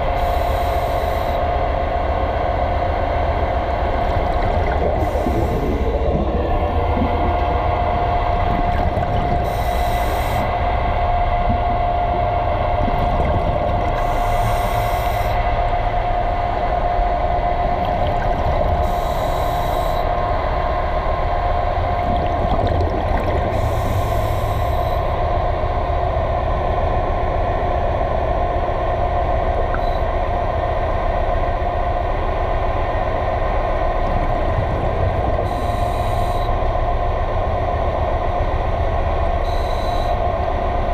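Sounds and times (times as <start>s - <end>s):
mechanical hum underwater: 0.0s - 40.9s.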